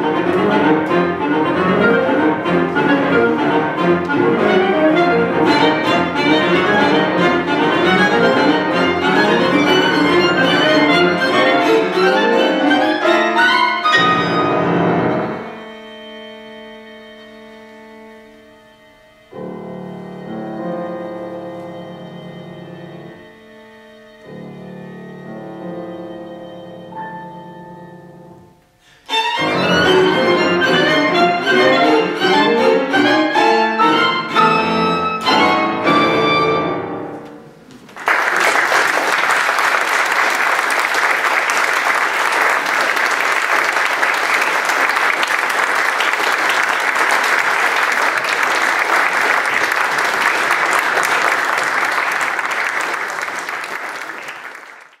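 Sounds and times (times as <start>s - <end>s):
chamber ensemble playing: 0.0s - 37.6s
audience applauding: 37.7s - 55.0s.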